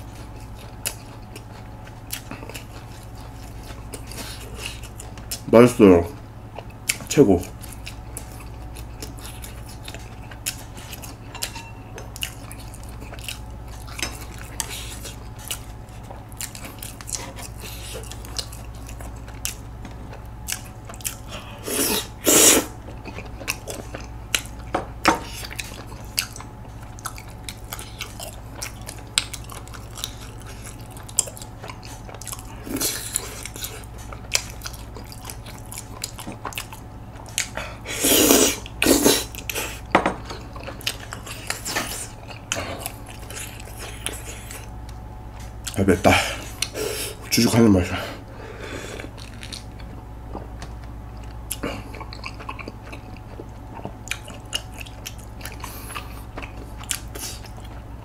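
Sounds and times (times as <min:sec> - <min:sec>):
chewing: 0:00.0 - 0:05.5, 0:06.1 - 0:47.4, 0:48.8 - 0:58.0
loud slurps: 0:21.6 - 0:22.7, 0:37.9 - 0:39.6.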